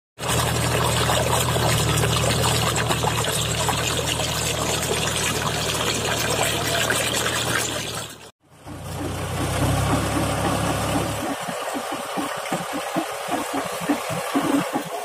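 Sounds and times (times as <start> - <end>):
water gushing from a pipe: 0.2 - 15.0
low engine hum: 8.4 - 11.3.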